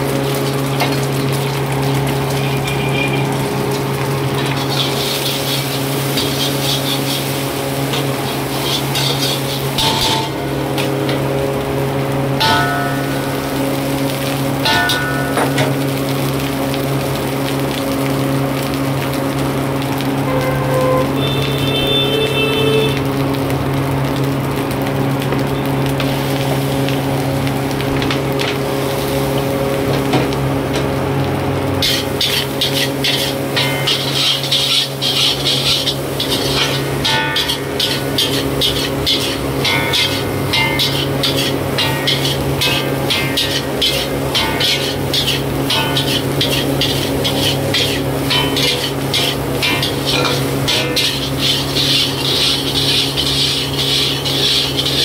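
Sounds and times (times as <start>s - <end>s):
egg sizzling in oil: 0.0s - 55.0s
gas stove roaring: 0.0s - 55.0s
metal ladle scraping wok: 4.3s - 11.2s, 31.8s - 55.0s.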